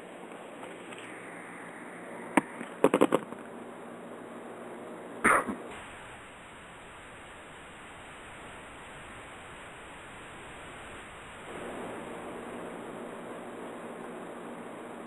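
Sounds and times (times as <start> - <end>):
phone line hiss: 0.6 - 2.8, 5.7 - 14.9.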